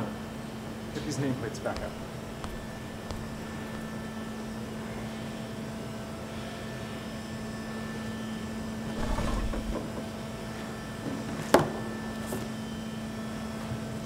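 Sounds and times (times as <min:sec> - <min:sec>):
low room hum: 0:00.8 - 0:05.4
hard object knocked on desk: 0:01.8 - 0:04.1.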